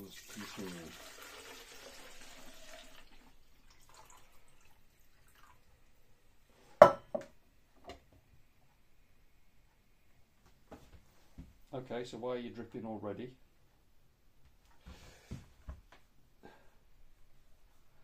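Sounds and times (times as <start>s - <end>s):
water pouring into plastic tank: 0.0s - 5.7s.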